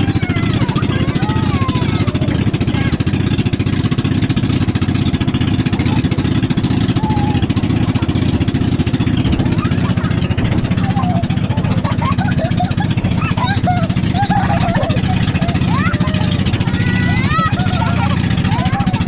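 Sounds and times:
hull cutting through choppy water: 0.0s - 19.0s
motorboat engine chugging: 0.0s - 19.0s.

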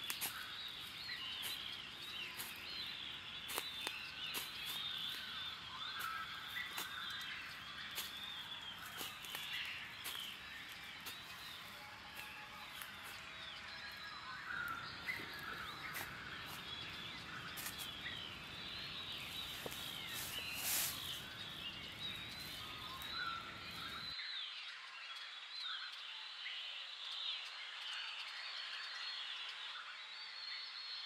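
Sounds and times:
small birds chirping: 0.0s - 31.0s.

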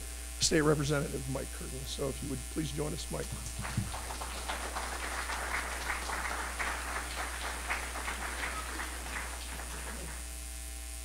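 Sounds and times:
steady electrical hum: 0.0s - 11.0s
audience applauding: 3.2s - 10.3s.

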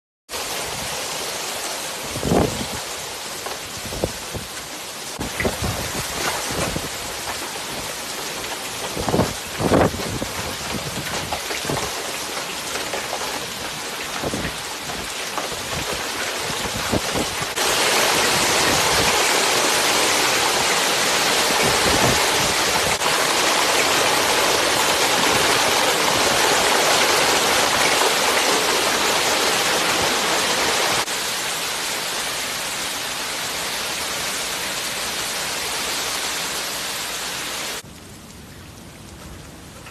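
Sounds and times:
heavy rain: 0.3s - 39.9s
running floodwater: 0.3s - 39.9s.

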